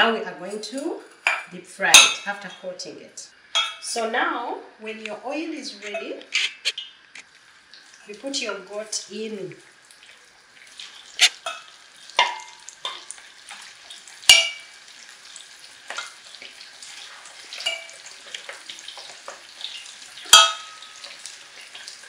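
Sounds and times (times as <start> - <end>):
meat sizzling in hot oil: 6.6 - 22.0.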